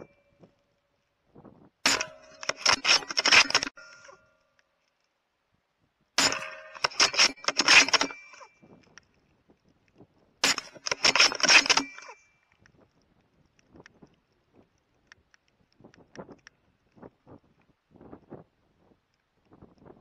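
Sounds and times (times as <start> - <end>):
rifle shots: 1.8 - 3.8, 6.2 - 8.3, 10.4 - 12.1
faint clicks: 7.8 - 20.0.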